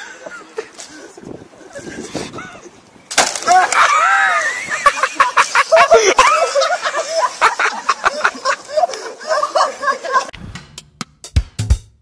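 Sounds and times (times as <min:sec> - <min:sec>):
people shouting and shrieking: 0:03.4 - 0:04.8, 0:05.5 - 0:07.4.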